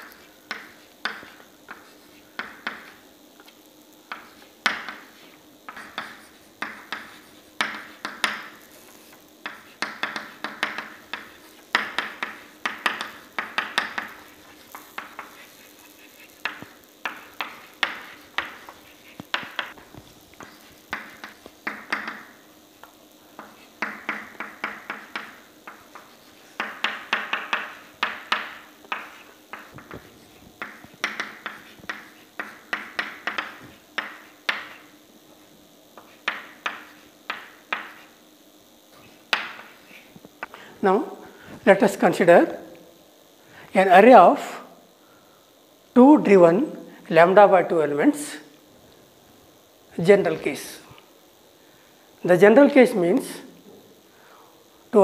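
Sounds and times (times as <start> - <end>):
chalk writing on a blackboard: 0.0 - 38.2, 38.9 - 40.2.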